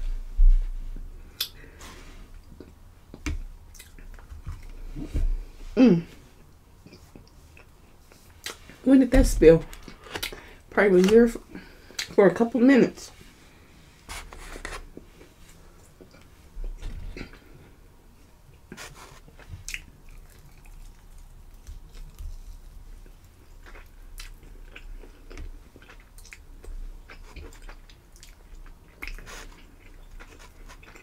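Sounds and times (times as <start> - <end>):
chewing crunchy fried chicken: 18.5 - 31.0.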